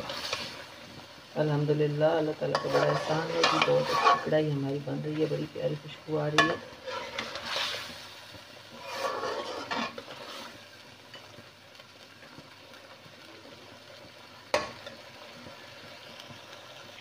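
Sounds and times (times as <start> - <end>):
gravy sizzling: 0.0 - 17.0
spatula scraping metal pan: 2.5 - 4.4, 6.4 - 8.0, 8.7 - 10.6.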